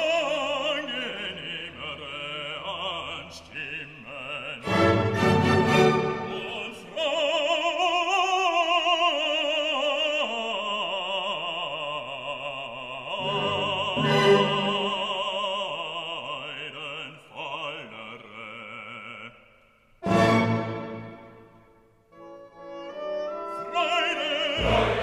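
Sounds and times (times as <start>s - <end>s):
operatic singing voice: 0.0s - 21.2s, 22.9s - 25.0s
classical accompaniment: 4.6s - 7.0s, 13.2s - 15.4s, 20.0s - 25.0s.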